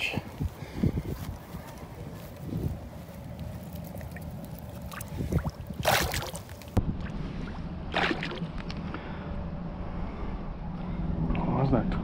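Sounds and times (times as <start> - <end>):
water splashes: 3.6 - 8.6.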